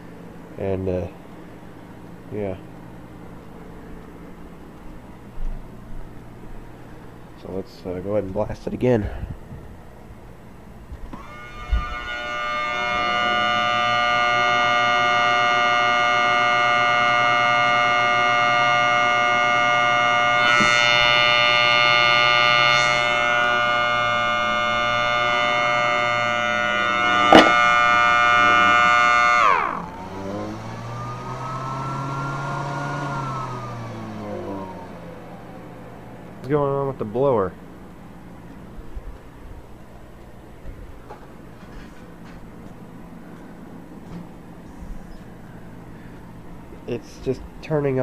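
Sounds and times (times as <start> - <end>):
siren sounding a chord: 10.7 - 39.0.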